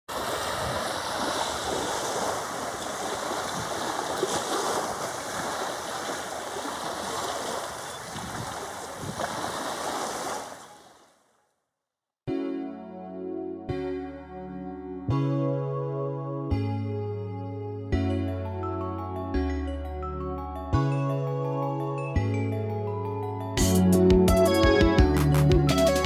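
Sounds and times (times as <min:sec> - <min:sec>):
small waves washing on shore: 0:00.1 - 0:11.1
wind on microphone: 0:07.6 - 0:09.7.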